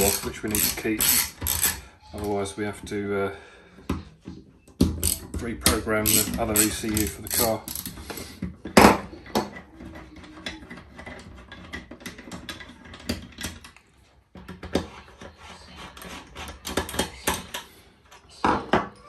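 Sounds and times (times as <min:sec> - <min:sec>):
ratchet clicks: 0:00.0 - 0:01.8, 0:05.0 - 0:05.3, 0:06.0 - 0:07.9
metallic clinking of hand tools: 0:05.0 - 0:08.2.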